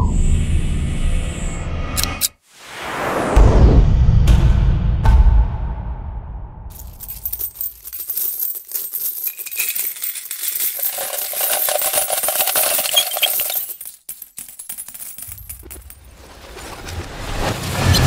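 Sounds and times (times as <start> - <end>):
coins pouring and clinking: 6.7 - 16.1.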